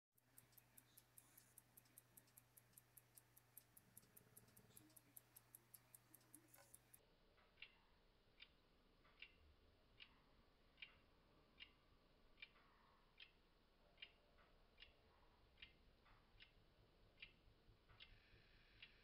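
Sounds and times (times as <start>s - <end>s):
pocket watch ticking: 0.2s - 9.4s, 10.0s - 19.0s.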